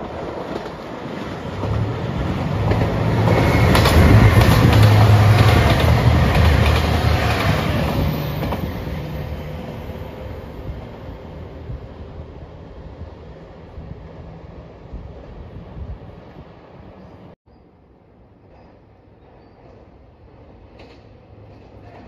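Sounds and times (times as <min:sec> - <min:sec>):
wheels clacking over rail joints: 0:00.1 - 0:09.8
diesel train engines running: 0:01.6 - 0:11.2.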